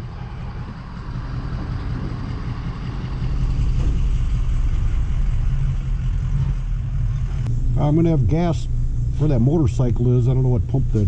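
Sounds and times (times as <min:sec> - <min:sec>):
vehicle engine idling: 0:00.0 - 0:11.0.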